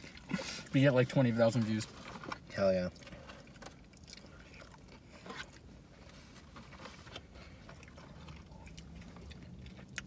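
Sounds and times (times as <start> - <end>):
chewing food: 2.9 - 10.0.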